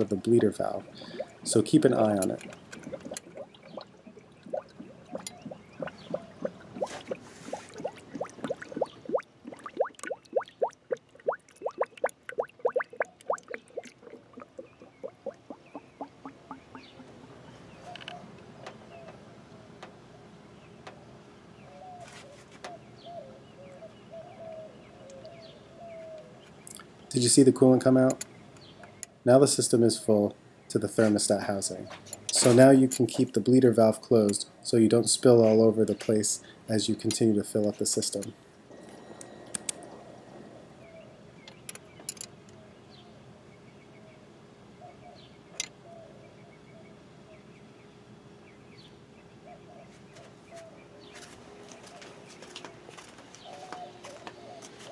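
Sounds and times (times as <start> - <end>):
dove cooing: 0.4 - 12.0, 12.6 - 17.1, 38.7 - 41.3, 51.7 - 54.9
faint clicks: 38.2 - 40.0.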